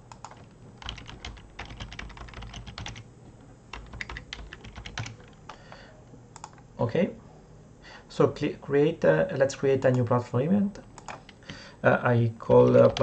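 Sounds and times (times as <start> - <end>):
typing on computer keyboard: 0.1 - 3.0, 3.7 - 5.6, 11.0 - 11.5, 12.6 - 13.0.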